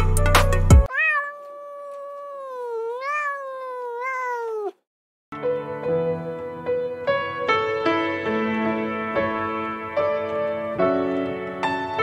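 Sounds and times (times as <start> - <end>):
background music: 0.0 - 0.9
cat meowing: 0.9 - 4.8
piano music: 5.4 - 12.0.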